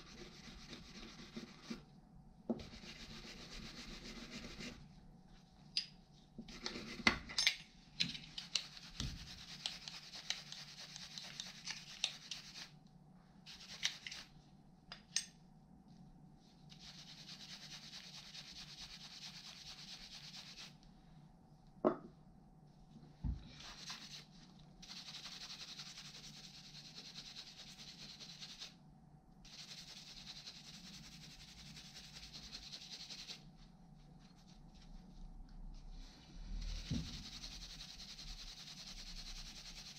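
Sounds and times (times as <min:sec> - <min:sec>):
gloved hands rubbing metal tool: 0:08.1 - 0:12.7, 0:13.5 - 0:14.3, 0:16.7 - 0:20.8, 0:23.6 - 0:28.7, 0:29.5 - 0:35.2.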